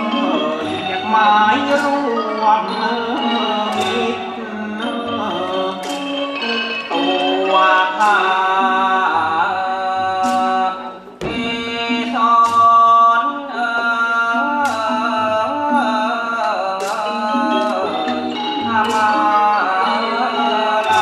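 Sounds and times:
mallet percussion: 0.0 - 21.0
sliding lead melody: 0.0 - 21.0
low drum beats: 11.1 - 12.9.

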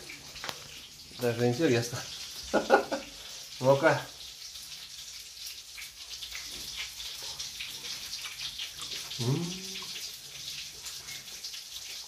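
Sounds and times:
food sizzling in oil: 0.0 - 12.0
man humming: 9.1 - 9.9.

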